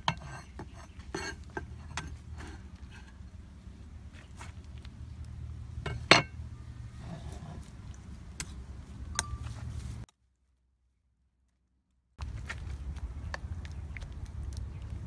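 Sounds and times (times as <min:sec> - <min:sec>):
low steady hum: 0:00.0 - 0:11.3.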